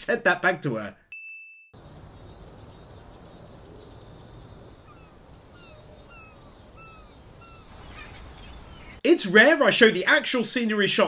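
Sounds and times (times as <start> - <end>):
high bird chirps: 1.8 - 9.0
downward-slurred whistled bird calls: 2.0 - 9.0.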